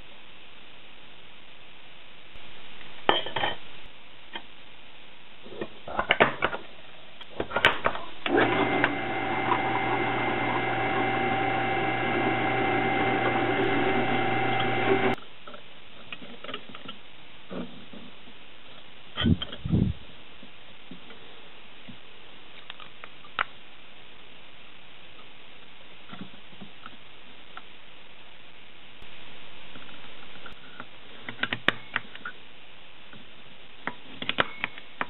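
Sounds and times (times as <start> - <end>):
drill press humming and whining: 8.3 - 15.2.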